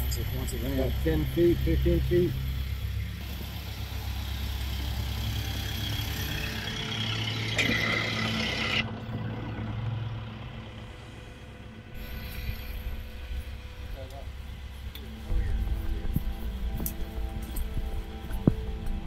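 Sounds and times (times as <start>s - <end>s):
engine running steadily: 0.0s - 19.0s
loud hiss with high ring: 10.8s - 14.8s.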